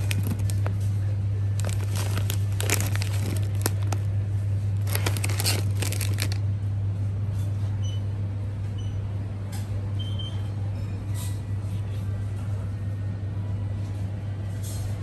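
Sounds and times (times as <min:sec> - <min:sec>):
plastic packet crinkling: 0:00.0 - 0:06.4
steady low hum: 0:00.0 - 0:15.0.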